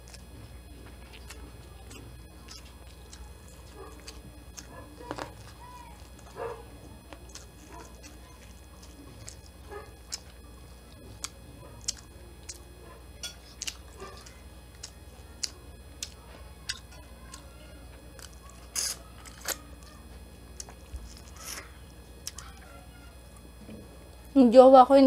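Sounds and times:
person chewing: 0:00.0 - 0:23.7.

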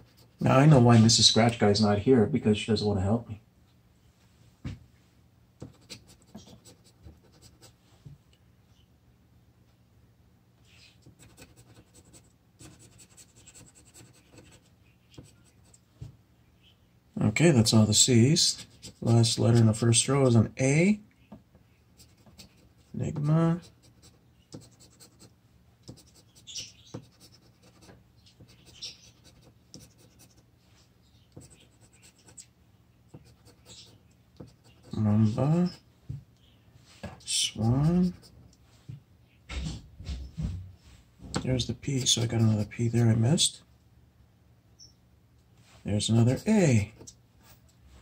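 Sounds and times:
scratching lottery ticket: 0:11.0 - 0:15.8, 0:18.4 - 0:20.1, 0:25.9 - 0:30.4, 0:41.6 - 0:43.1.

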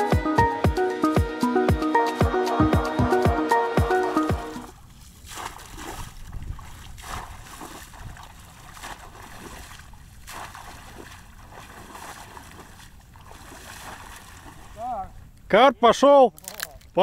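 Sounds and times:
water splashing and sloshing: 0:04.4 - 0:15.5.

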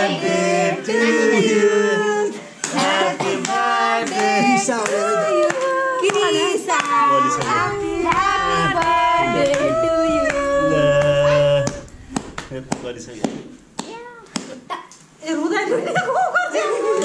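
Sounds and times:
voices singing together: 0:00.0 - 0:13.2.

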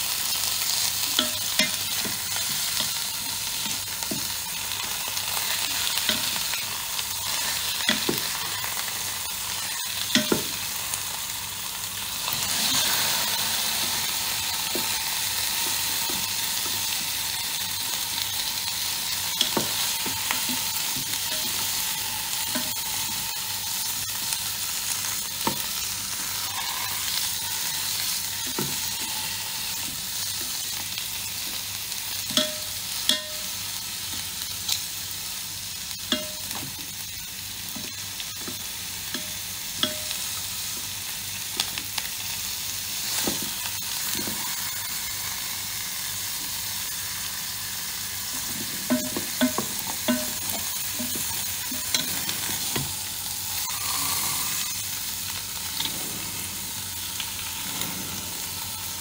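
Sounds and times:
meat sizzling in pot: 0:00.0 - 0:59.0
utensils knocking against pot: 0:10.1 - 0:10.6, 0:48.5 - 0:52.9.

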